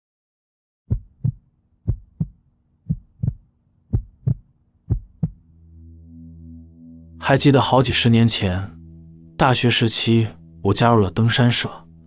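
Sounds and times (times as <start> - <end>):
heartbeat thumps: 0.9 - 5.5.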